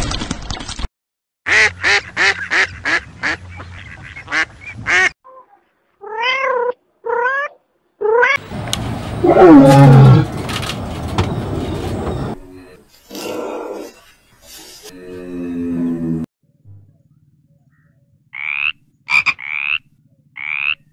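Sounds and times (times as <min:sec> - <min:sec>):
lion roaring: 0:09.1 - 0:10.5.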